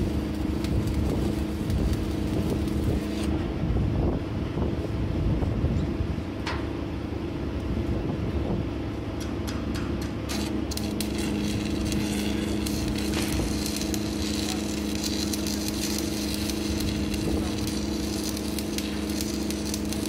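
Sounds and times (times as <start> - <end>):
electric arc welding crackling: 0.0 - 3.4, 10.1 - 20.0.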